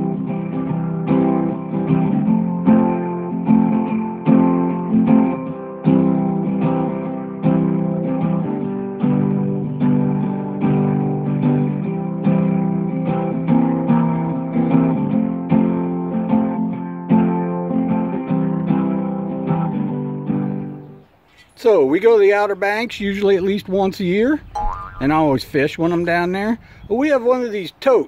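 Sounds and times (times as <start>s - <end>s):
guitar strumming chords: 0.0s - 21.1s.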